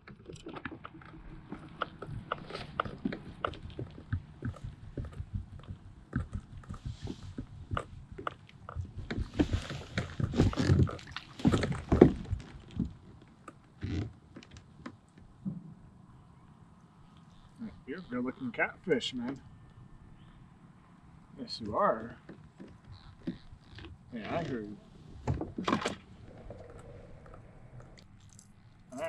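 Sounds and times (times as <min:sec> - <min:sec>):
fish splashing and thrashing: 0:00.0 - 0:14.4, 0:25.0 - 0:29.0
small irregular clicks and knocks: 0:00.0 - 0:15.7, 0:21.6 - 0:28.9.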